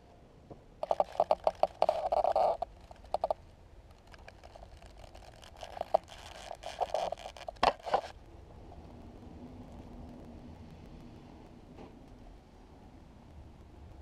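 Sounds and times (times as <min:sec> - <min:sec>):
scraping rustle: 0:00.8 - 0:09.0.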